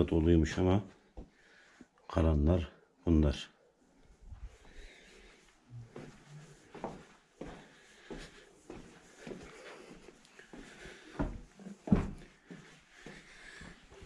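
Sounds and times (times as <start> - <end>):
footsteps on wooden planks: 5.9 - 14.0.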